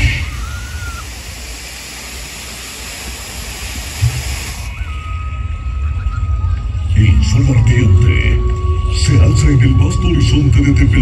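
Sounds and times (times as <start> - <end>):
spark fountains hissing: 0.0 - 5.0.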